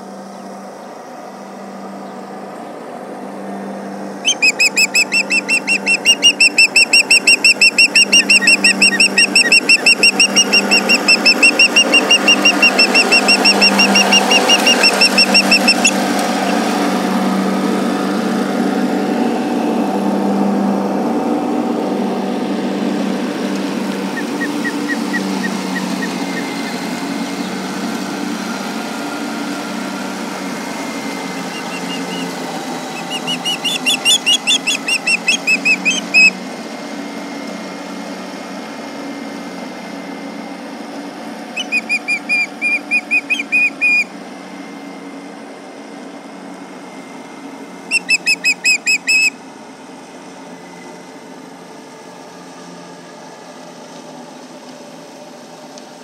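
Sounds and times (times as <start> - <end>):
tractor engine droning: 0.0 - 56.0
birds high-pitched alarm calls: 4.2 - 16.6, 24.1 - 27.6, 31.4 - 36.4, 41.5 - 44.1, 47.9 - 49.4.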